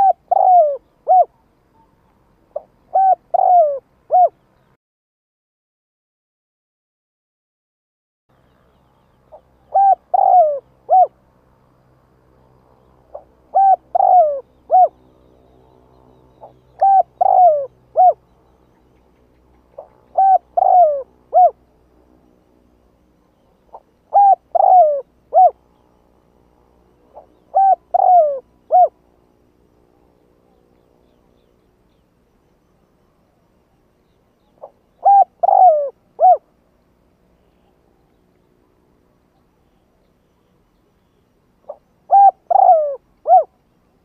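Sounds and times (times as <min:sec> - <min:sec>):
dove cooing: 0:00.0 - 0:04.4, 0:09.3 - 0:11.2, 0:13.1 - 0:15.0, 0:16.4 - 0:18.2, 0:19.7 - 0:21.6, 0:23.4 - 0:25.6, 0:27.1 - 0:29.0, 0:34.4 - 0:36.5, 0:41.6 - 0:43.6.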